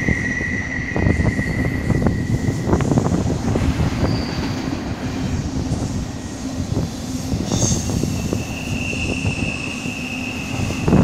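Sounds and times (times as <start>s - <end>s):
high wheel squeal: 0.0s - 3.2s, 3.8s - 4.9s, 7.2s - 11.0s.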